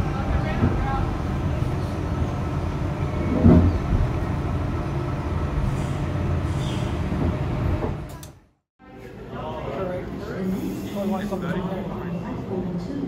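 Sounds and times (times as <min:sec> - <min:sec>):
electric train rumbling: 0:00.0 - 0:08.4.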